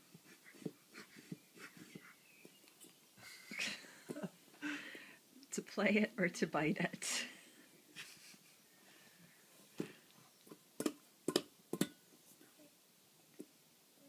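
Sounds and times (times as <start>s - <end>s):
hands slapping metal bowl: 10.8s - 12.0s.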